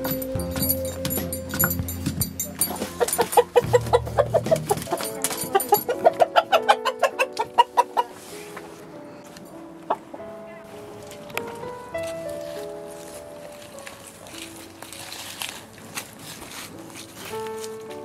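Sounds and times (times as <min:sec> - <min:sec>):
rooster clucking and squawking: 0:03.0 - 0:05.0, 0:05.7 - 0:08.2.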